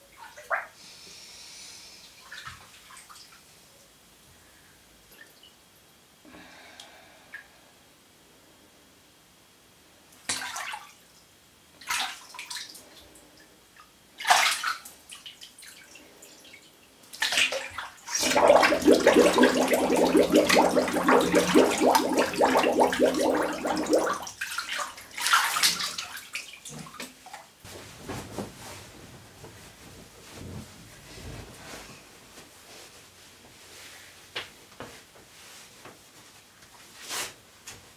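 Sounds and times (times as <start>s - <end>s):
bath water sloshing: 10.3s - 10.9s, 14.2s - 15.9s, 17.1s - 27.5s
water splash: 17.2s - 26.5s
underwater bubbling and gurgling: 18.2s - 24.2s.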